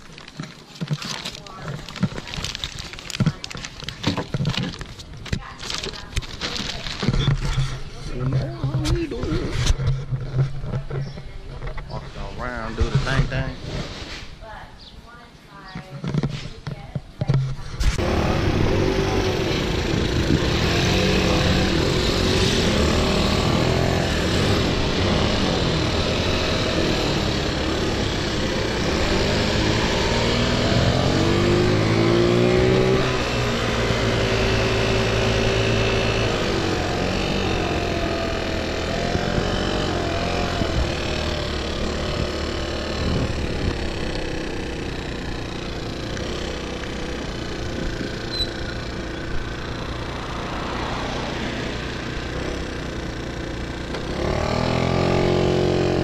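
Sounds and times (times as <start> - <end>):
scooter engine: 0.0 - 11.7, 17.8 - 56.0
wind rushing over microphone: 42.9 - 44.0.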